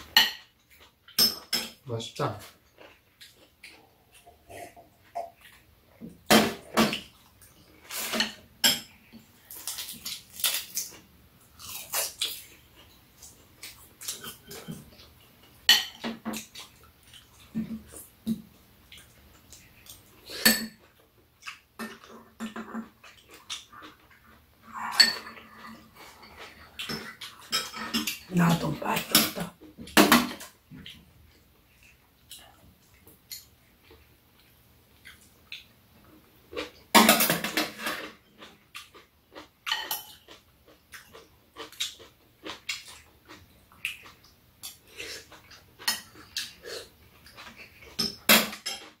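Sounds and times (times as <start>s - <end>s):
mouth sounds of eating: 21.4s - 29.8s.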